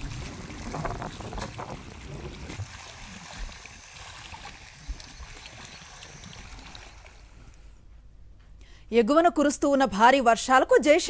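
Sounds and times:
choppy water against shore: 0.0s - 7.7s.

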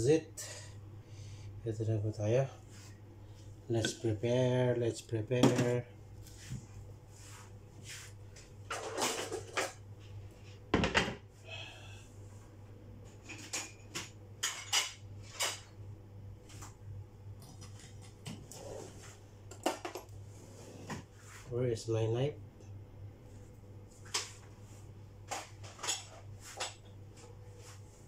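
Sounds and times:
steady low hum: 0.0s - 28.0s
objects clattering on a counter: 8.7s - 9.8s, 10.8s - 11.2s, 19.5s - 20.1s.

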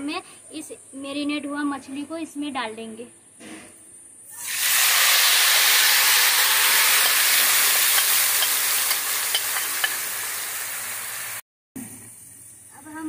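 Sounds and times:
oil sizzling loudly: 4.3s - 13.0s.

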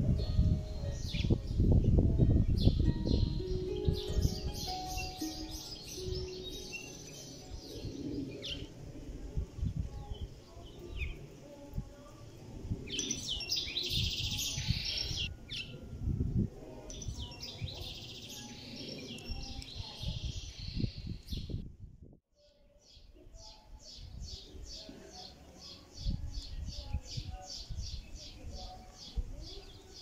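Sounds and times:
small birds chirping: 2.5s - 9.0s, 9.6s - 15.8s, 16.8s - 21.6s.

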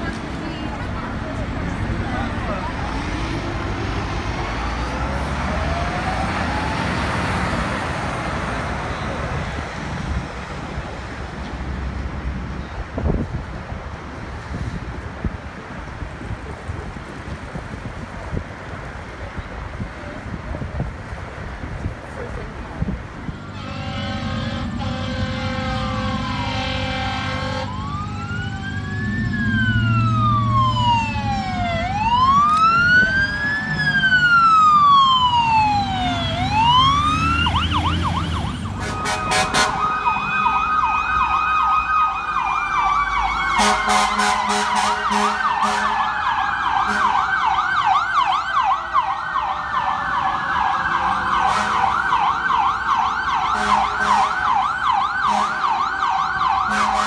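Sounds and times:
short sharp horn blasts: 23.4s - 27.7s
steady horn note: 23.5s - 27.7s
electronic siren wailing: 25.0s - 44.2s
fast siren yelp: 26.1s - 57.0s.

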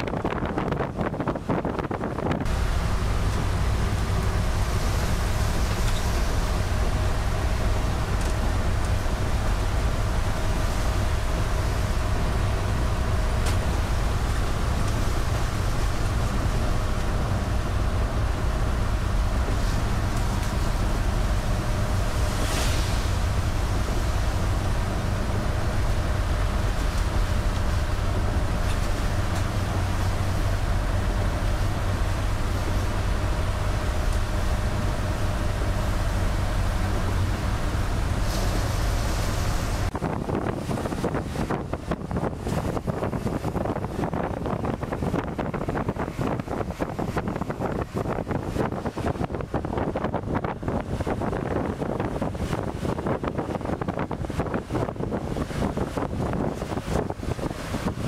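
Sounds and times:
engine and road rumble: 0.0s - 58.0s
windscreen wipers swishing: 0.0s - 58.0s
tyres hissing on wet road: 2.5s - 41.5s.

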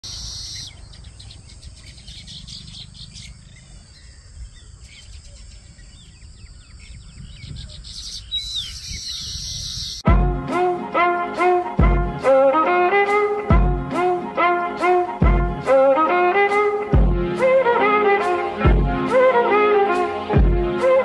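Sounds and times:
birds chirping and chattering: 0.0s - 10.0s.

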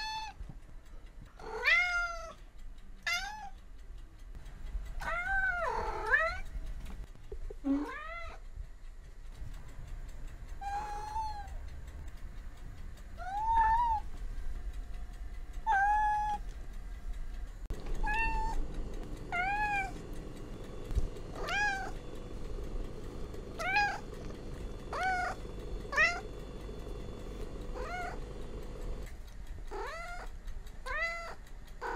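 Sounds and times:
kitten meowing: 1.5s - 2.3s, 3.1s - 3.5s, 10.6s - 11.5s, 13.2s - 14.1s, 15.7s - 16.4s, 18.0s - 18.6s, 21.4s - 22.0s, 23.6s - 24.2s, 24.9s - 26.3s.

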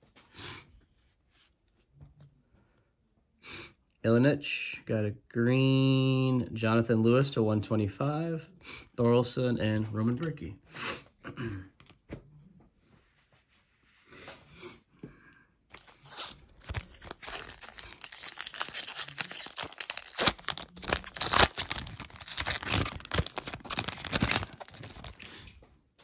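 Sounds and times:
foil wrapper tearing and crinkling: 15.7s - 25.4s.

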